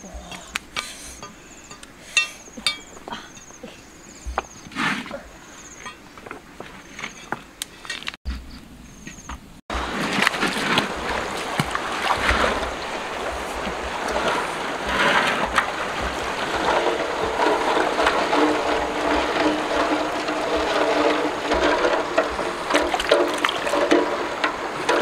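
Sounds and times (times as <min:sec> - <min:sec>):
river water rushing: 0:09.7 - 0:25.0
metal basin splashing in water: 0:09.9 - 0:25.0.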